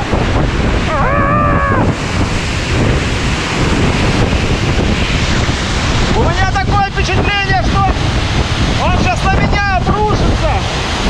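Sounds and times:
waterfall roaring: 0:00.0 - 0:11.0
wind buffeting microphone: 0:00.0 - 0:11.0
person exclaiming: 0:00.8 - 0:02.0.

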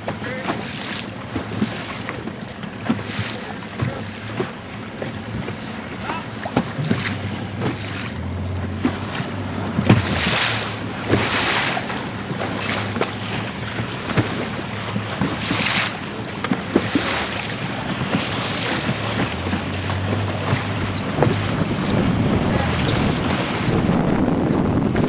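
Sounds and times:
choppy sea water: 0:00.0 - 0:25.0
water slapping: 0:00.0 - 0:25.0
wind buffeting microphone: 0:17.6 - 0:25.0.

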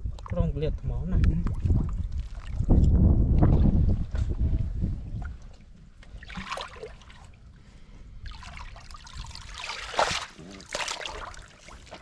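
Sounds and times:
pool water sloshing and splashing: 0:01.6 - 0:02.7, 0:05.2 - 0:07.6, 0:08.2 - 0:12.0.

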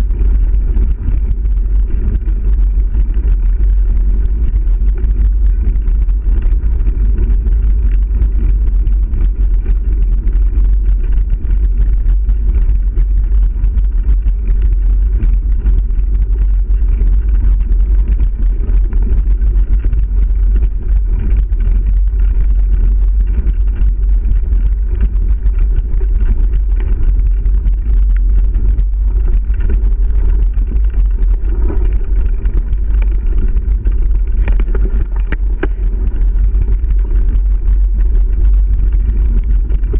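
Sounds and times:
bike rattles and clicks: 0:00.0 - 0:39.9
wind buffeting microphone: 0:00.0 - 0:39.9
tyres rolling over gravel: 0:14.3 - 0:39.9.

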